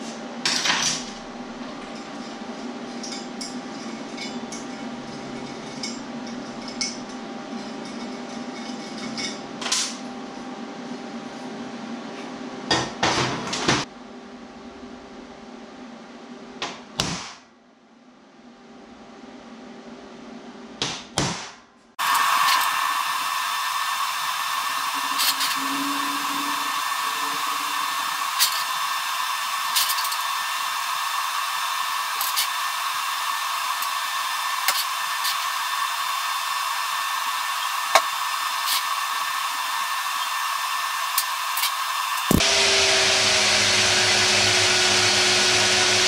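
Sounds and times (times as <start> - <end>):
machine humming with hiss: 22.0 - 46.0.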